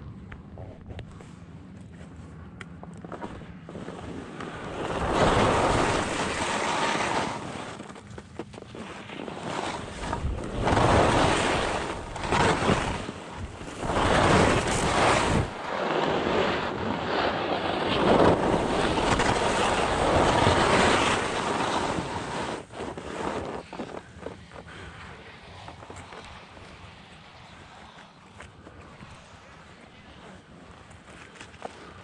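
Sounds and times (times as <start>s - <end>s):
skis scraping on snow: 3.1s - 32.0s
wind on microphone: 9.3s - 26.8s.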